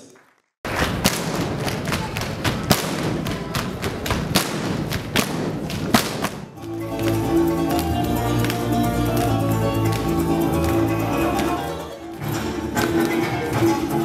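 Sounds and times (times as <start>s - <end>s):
audience applauding: 0.0s - 4.2s
music: 6.5s - 14.0s.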